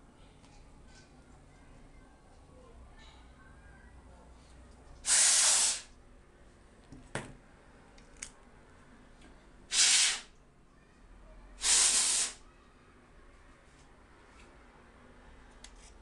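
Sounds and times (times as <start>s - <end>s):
hissing air blasts: 5.0s - 5.9s, 9.7s - 10.3s, 11.6s - 12.4s.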